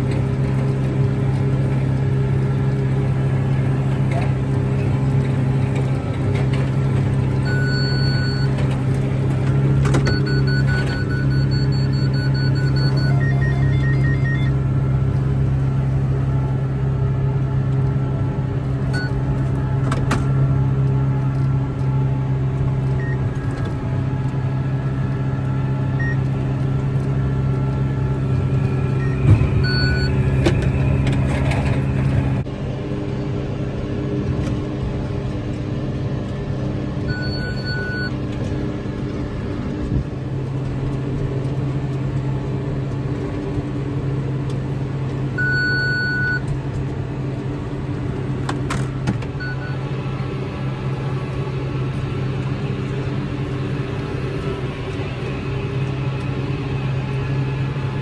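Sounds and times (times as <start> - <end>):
tractor engine running: 0.0 - 58.0
short electronic beeps: 7.4 - 8.6, 10.0 - 14.6, 28.6 - 30.9, 37.1 - 38.1.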